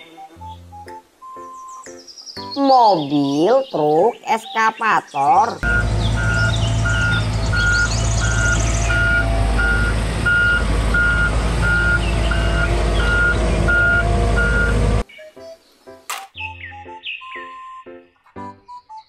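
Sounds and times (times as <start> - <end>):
birds chirping: 0.0 - 19.0
backup alarm beeping: 5.6 - 15.0
diesel engine running: 5.6 - 15.0.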